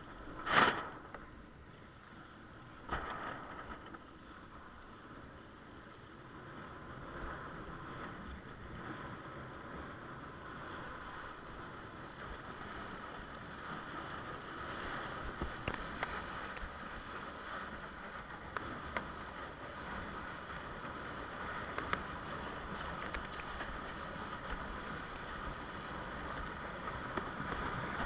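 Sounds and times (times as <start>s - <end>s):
water rushing past board: 0.0s - 1.5s, 2.7s - 4.3s.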